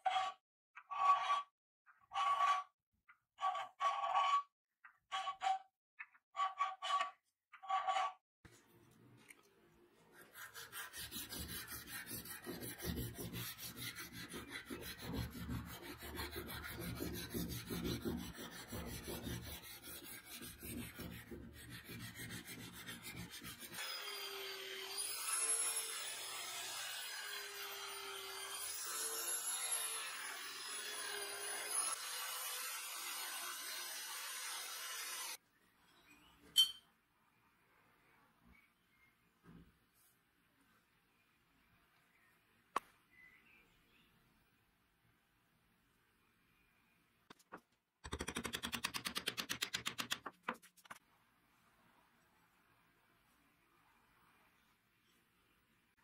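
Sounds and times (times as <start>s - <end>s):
hand file scraping on brass: 10.2s - 23.8s.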